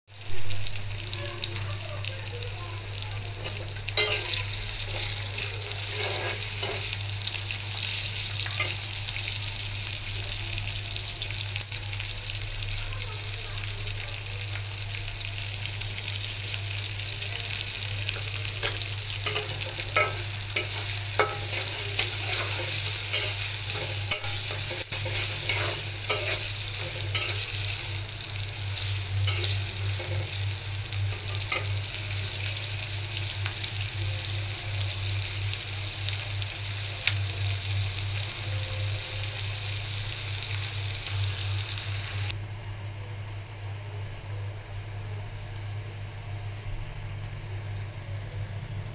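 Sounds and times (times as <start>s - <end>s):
onions sizzling in hot oil: 0.1s - 48.9s
spatula scraping wok: 3.3s - 9.1s, 17.1s - 32.4s.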